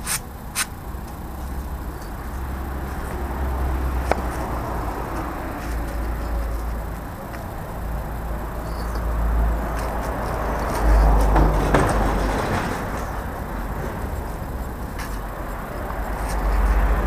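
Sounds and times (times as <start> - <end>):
steady low rumble: 0.0 - 17.0
concrete paving blocks knocking: 9.8 - 13.2.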